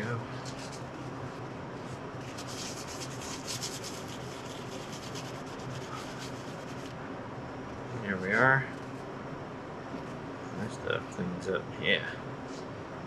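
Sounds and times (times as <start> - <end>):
steady low hum: 0.0 - 13.0
hand rubbing metal scratchy swishes: 1.9 - 6.9.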